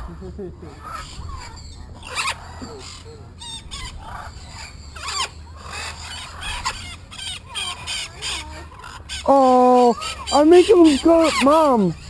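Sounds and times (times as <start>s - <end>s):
parrots squawking: 0.0s - 12.0s.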